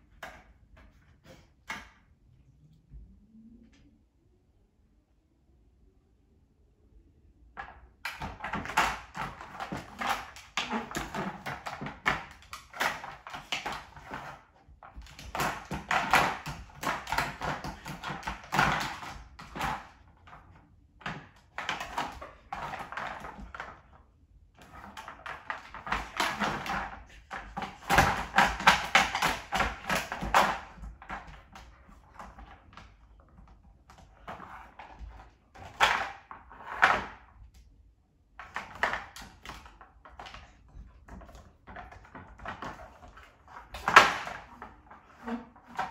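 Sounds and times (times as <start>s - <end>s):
plastic toys clattering on wood floor: 7.6s - 24.0s, 24.6s - 37.3s, 38.4s - 45.9s.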